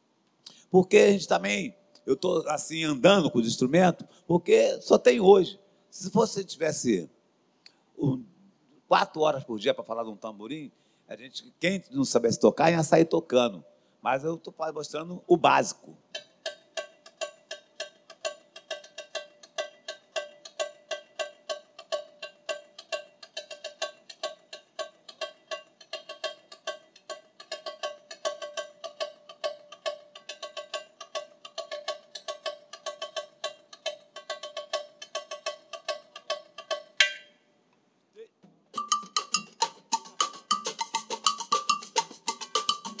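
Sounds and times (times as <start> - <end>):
higher-pitched percussion pattern: 16.1 - 37.4, 38.8 - 43.0
frame drum struck with stick: 36.3 - 37.4, 38.8 - 43.0.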